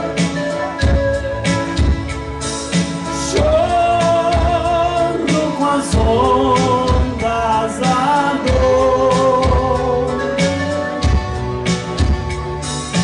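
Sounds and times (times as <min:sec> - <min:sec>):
bass: 0:00.0 - 0:13.0
drums: 0:00.0 - 0:13.0
man singing: 0:03.1 - 0:11.0.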